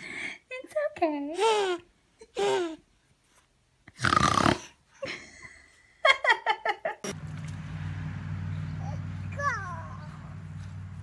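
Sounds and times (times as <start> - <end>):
baby laughing: 1.4 - 2.8
steady low hum: 7.1 - 11.0.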